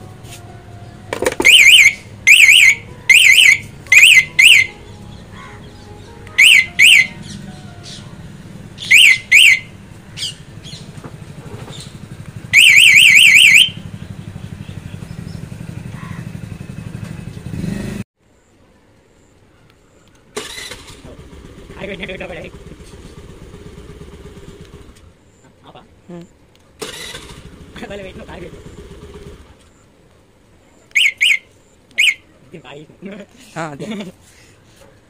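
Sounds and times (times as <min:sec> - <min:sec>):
alarm siren chirping: 0:00.7 - 0:10.8, 0:12.4 - 0:14.2, 0:30.9 - 0:32.3.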